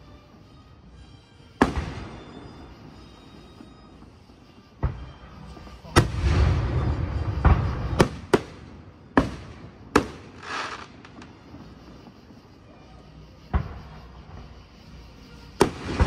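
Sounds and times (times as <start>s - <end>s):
fireworks rumble and crackle: 0.0s - 16.0s
fireworks bangs: 1.6s - 14.6s, 15.5s - 16.0s
short hiss: 10.0s - 16.0s.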